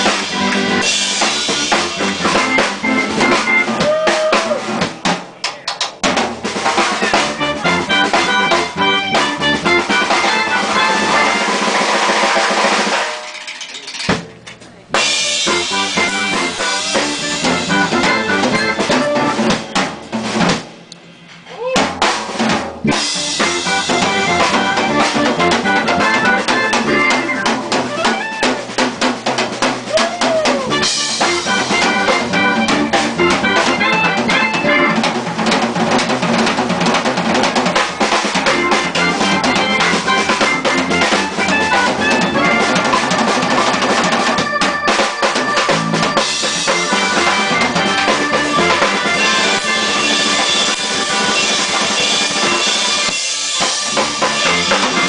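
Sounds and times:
woodwind lead: 0:00.0 - 0:04.9, 0:07.0 - 0:12.3, 0:15.0 - 0:19.7, 0:22.9 - 0:28.8, 0:29.8 - 0:35.1, 0:38.4 - 0:55.0
electric bass: 0:00.0 - 0:05.1, 0:06.0 - 0:12.9, 0:14.0 - 0:55.0
jazz fusion band playing: 0:00.0 - 0:21.2, 0:21.8 - 0:55.0
drum kit: 0:00.0 - 0:55.0.

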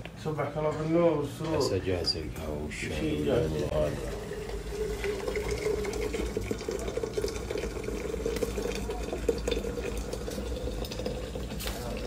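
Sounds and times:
water pouring into metal teapot: 0:03.7 - 0:12.0.

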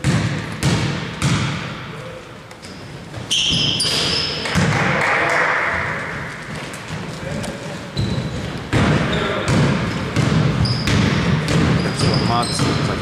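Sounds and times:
basketball bouncing: 0:00.0 - 0:01.9, 0:03.1 - 0:05.0, 0:05.8 - 0:13.0
shoe squeaks: 0:02.6 - 0:04.6, 0:07.5 - 0:08.5, 0:10.6 - 0:13.0.

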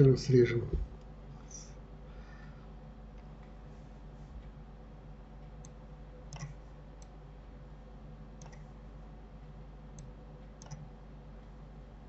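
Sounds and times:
low steady hum: 0:00.0 - 0:12.0
computer mouse clicks: 0:05.5 - 0:07.2, 0:08.4 - 0:08.7, 0:09.9 - 0:10.9.

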